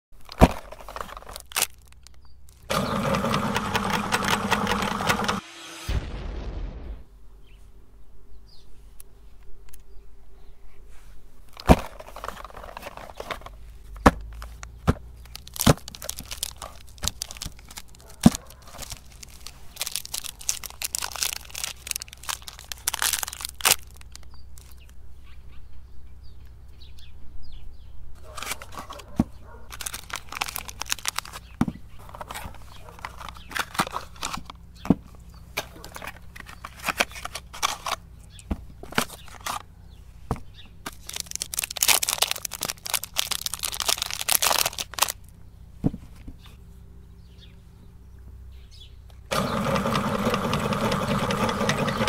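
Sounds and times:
plastic wrappers crinkling: 0.2 - 2.8, 11.5 - 24.9, 28.2 - 34.6, 35.6 - 38.0, 38.9 - 39.6, 40.9 - 45.3
paper and cardboard tearing: 0.2 - 5.5, 11.6 - 24.7, 28.2 - 34.5, 35.7 - 38.0, 40.9 - 45.2.

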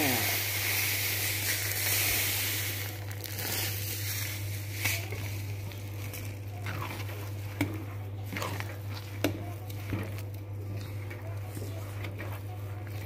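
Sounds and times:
spatula scraping thick paste: 3.2 - 13.0.

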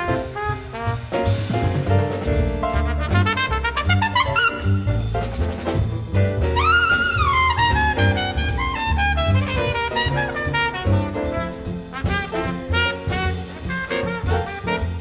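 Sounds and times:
big band rhythm section: 0.0 - 15.0
jazz trumpet solo: 0.0 - 15.0
steady bass line: 0.0 - 15.0.

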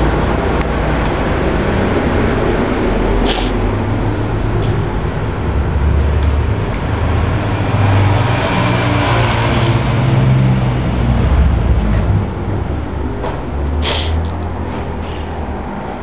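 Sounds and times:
low mechanical rumble: 0.0 - 16.0.

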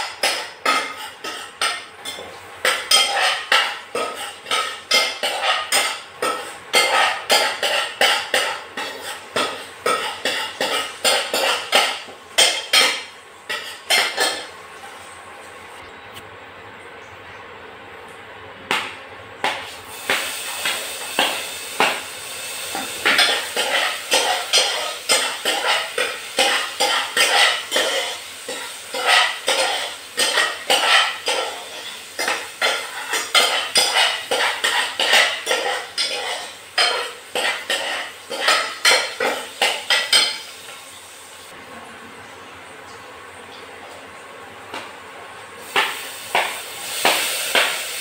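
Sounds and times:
oil sizzling: 0.0 - 15.8, 18.7 - 41.6, 42.5 - 48.0
metal spoon scraping saucepan: 0.2 - 14.5, 23.0 - 40.4.

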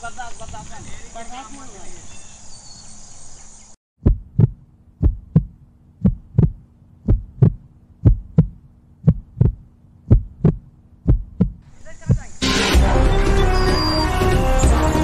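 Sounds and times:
outdoor ambience: 0.0 - 15.0
heartbeat thumps: 4.0 - 12.4.

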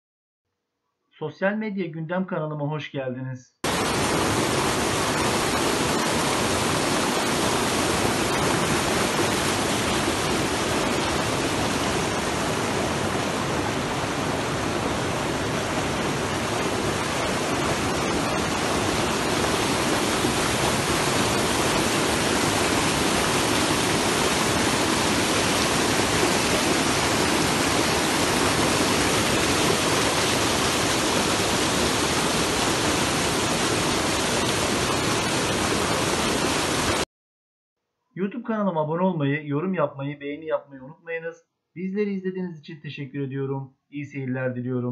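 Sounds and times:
stream rushing over stones: 3.6 - 37.0.

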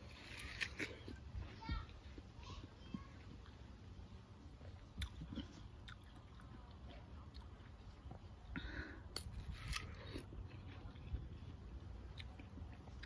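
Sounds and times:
crisp bite into watermelon: 0.0 - 1.2, 9.2 - 11.2
chewing watermelon: 0.0 - 13.0.

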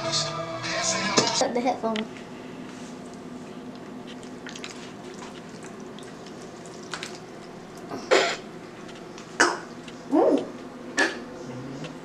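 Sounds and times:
jello squelching and dripping: 3.1 - 7.9.

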